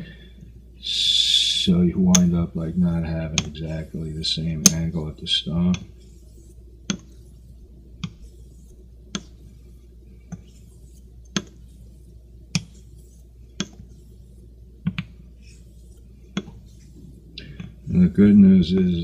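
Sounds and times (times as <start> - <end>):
razor honing on whetstone: 5.7 - 14.5, 15.4 - 17.1.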